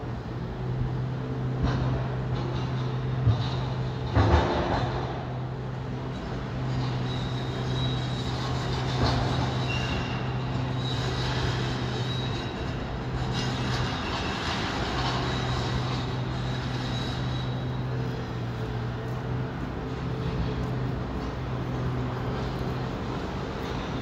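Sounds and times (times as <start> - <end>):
diesel machinery running: 0.0 - 24.0
high metallic squeals: 6.1 - 18.6.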